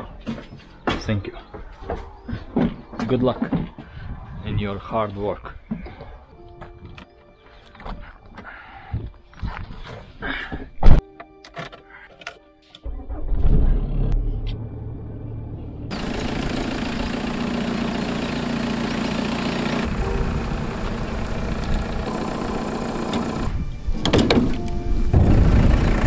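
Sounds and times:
car engine starting and running: 0:12.8 - 0:26.0.

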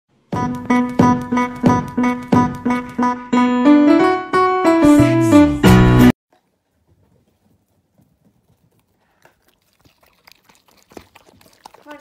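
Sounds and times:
rising keyboard notes and chord: 0:00.4 - 0:06.2.

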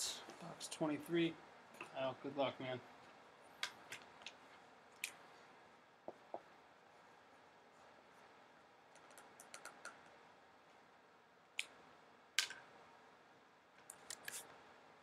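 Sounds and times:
pens clicking and tapping: 0:08.9 - 0:10.1.

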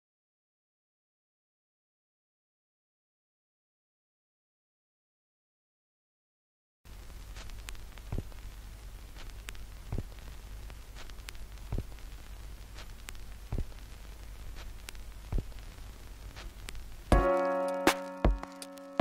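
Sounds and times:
crackling static hum and hiss: 0:06.9 - 0:19.0
sharp static pops: 0:06.9 - 0:19.0.

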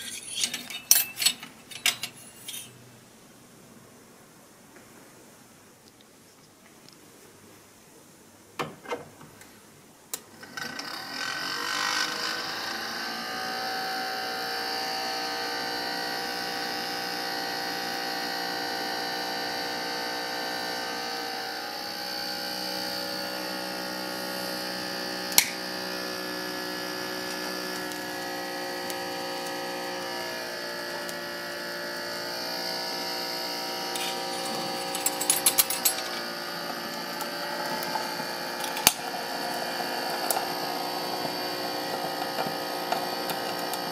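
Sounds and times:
small electric fan whining: 0:10.2 - 0:43.9
coal scoop clinking: 0:34.0 - 0:36.3.

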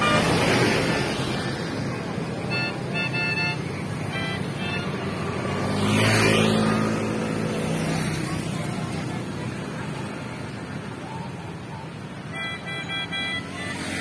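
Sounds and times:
multi-tone bus horn: 0:00.0 - 0:01.2, 0:02.3 - 0:05.6, 0:12.2 - 0:14.0
road traffic: 0:00.0 - 0:14.0
vehicle passing close by: 0:03.7 - 0:10.4.

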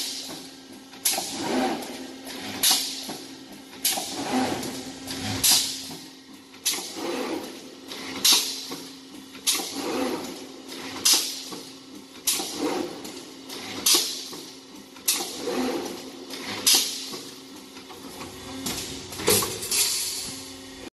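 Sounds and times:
welding machine strike and hiss: 0:00.0 - 0:01.5, 0:02.6 - 0:03.2, 0:03.9 - 0:06.1, 0:11.0 - 0:11.6, 0:16.6 - 0:17.3, 0:18.2 - 0:20.9.

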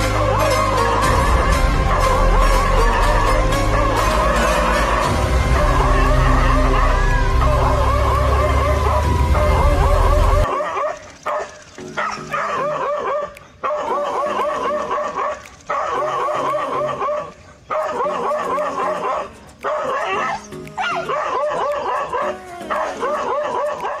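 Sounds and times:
background music: 0:00.0 - 0:10.6, 0:11.5 - 0:24.0
dog barking rapidly: 0:10.4 - 0:24.0.

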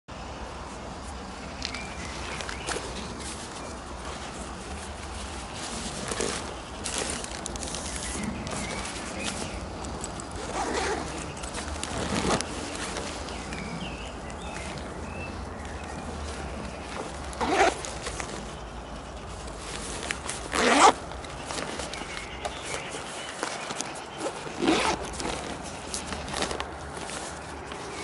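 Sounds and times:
backpack zips pulled: 0:05.4 - 0:13.8, 0:16.9 - 0:18.4, 0:19.7 - 0:28.0.

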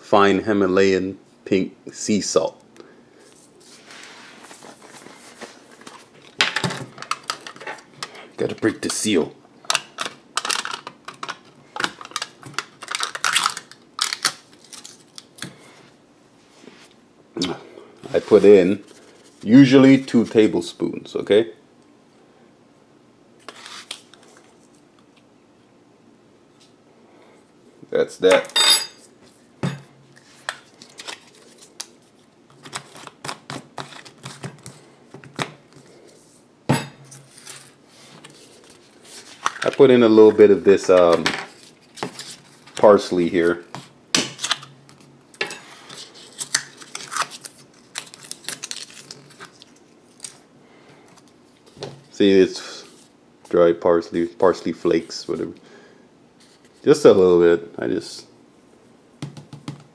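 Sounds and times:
crinkly crackles of seal: 0:09.7 - 0:15.5, 0:45.9 - 0:50.5.

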